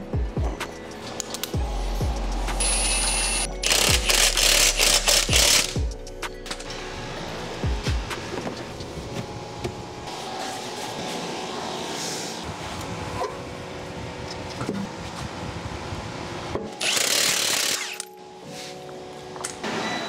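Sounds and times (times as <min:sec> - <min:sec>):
impact wrench running: 0:02.6 - 0:05.9, 0:16.8 - 0:18.0.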